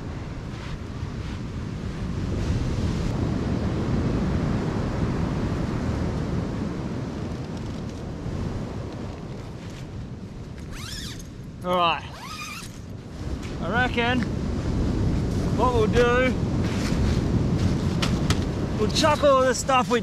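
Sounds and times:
wind on microphone: 0:00.0 - 0:20.0
ocean surf breaking: 0:13.2 - 0:20.0.

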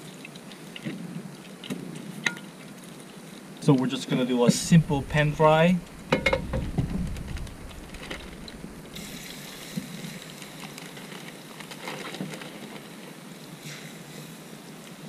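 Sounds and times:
knock: 0:06.1 - 0:07.2
fish sizzling in frying pan: 0:08.4 - 0:10.8.

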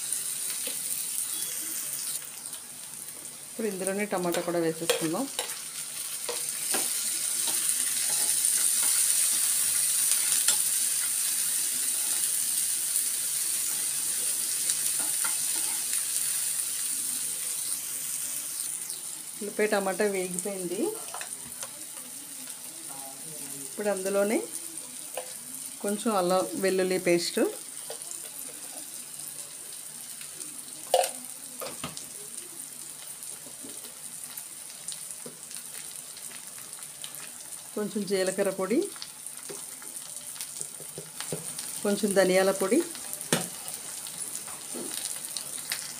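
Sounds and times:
vegetables sizzling in hot oil: 0:00.0 - 0:45.9
spatula scraping a pan: 0:06.2 - 0:09.4, 0:15.0 - 0:16.0.

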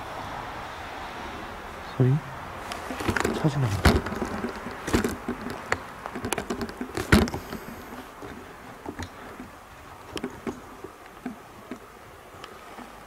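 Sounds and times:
light knocks and clicks: 0:02.7 - 0:12.9.

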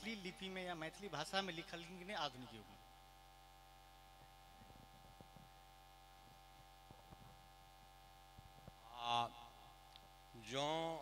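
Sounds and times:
man's voice over sound system: 0:00.0 - 0:02.8, 0:10.4 - 0:11.0
electrical mains hum: 0:00.0 - 0:11.0.

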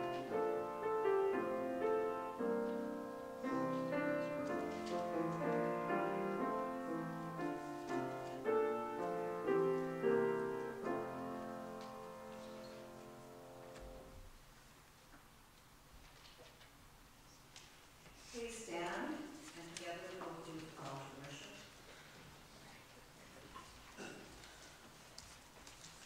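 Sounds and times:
piano block chords: 0:00.0 - 0:14.2.

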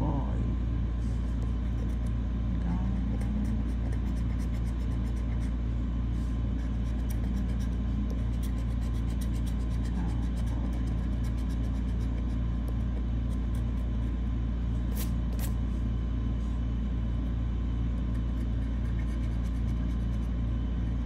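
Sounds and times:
low rumble: 0:00.0 - 0:03.5
metal tool scratching ticket: 0:03.0 - 0:05.6, 0:06.6 - 0:12.4.

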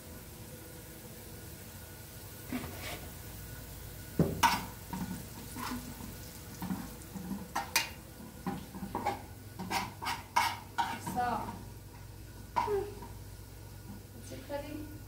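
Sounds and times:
utensils scraping cookware: 0:02.5 - 0:03.1, 0:08.9 - 0:11.3.

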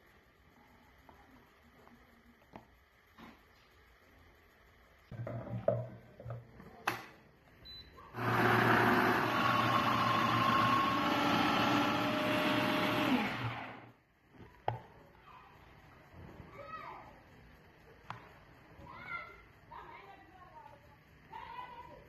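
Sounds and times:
blender motor running: 0:08.1 - 0:14.0.

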